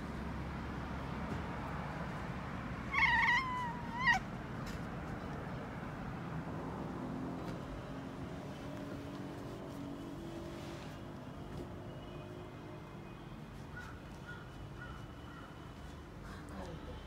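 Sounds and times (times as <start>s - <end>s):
cat meowing: 2.9s - 4.3s.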